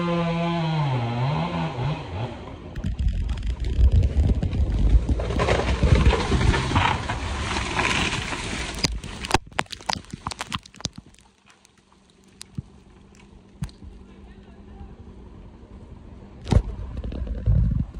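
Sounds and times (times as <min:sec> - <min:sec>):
tree crashing through branches: 0:02.8 - 0:14.0
twigs snapping and crackling: 0:02.8 - 0:14.0.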